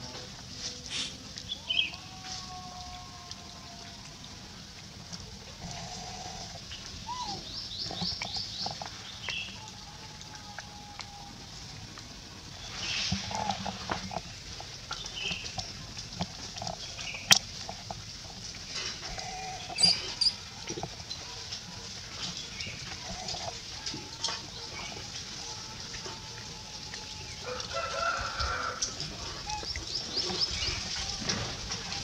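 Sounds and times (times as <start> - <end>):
animal and bird calls: 5.6 - 9.8, 18.8 - 25.2, 28.6 - 31.4.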